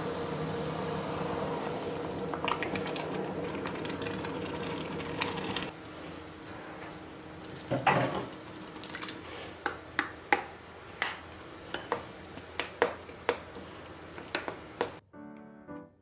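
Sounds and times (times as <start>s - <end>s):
soup simmering: 0.4s - 5.7s.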